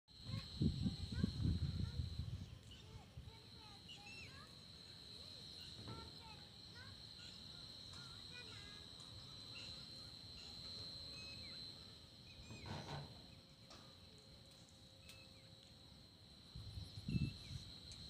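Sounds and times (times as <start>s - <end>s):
insects whining: 0.1s - 18.0s
bird chirps: 9.5s - 13.4s.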